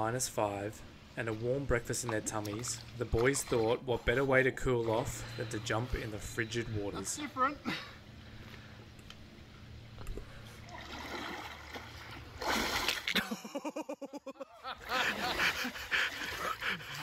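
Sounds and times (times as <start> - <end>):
body splashing into water: 10.6 - 13.2.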